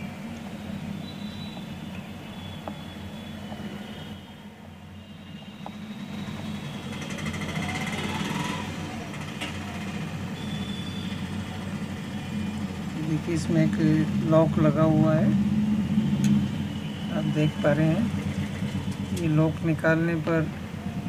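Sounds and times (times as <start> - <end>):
motor vehicle passing: 6.0 - 10.4, 11.3 - 19.6.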